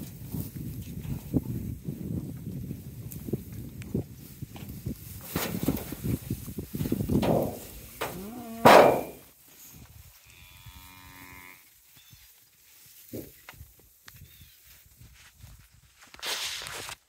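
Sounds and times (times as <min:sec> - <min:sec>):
cow mooing: 0:08.0 - 0:09.2, 0:10.4 - 0:11.6.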